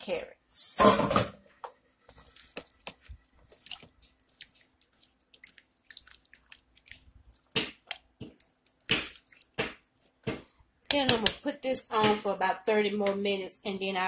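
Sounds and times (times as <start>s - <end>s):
spatula stirring vegetables in pot: 1.6s - 12.4s.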